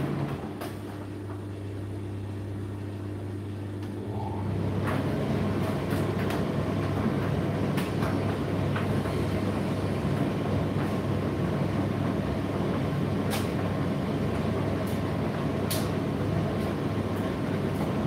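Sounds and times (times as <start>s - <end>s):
tumble dryer motor hum: 0.0s - 18.0s.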